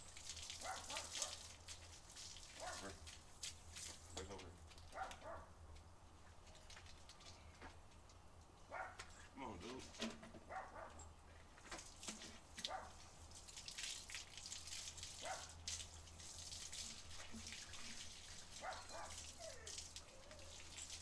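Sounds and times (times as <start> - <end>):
hose water spraying: 0.0 - 4.9, 11.7 - 21.0.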